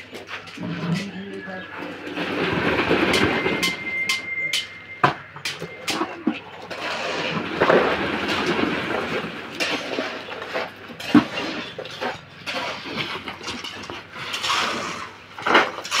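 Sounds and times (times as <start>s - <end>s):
metal pans clanking and scraping: 0.0s - 16.0s
concrete pouring into formwork: 5.5s - 16.0s.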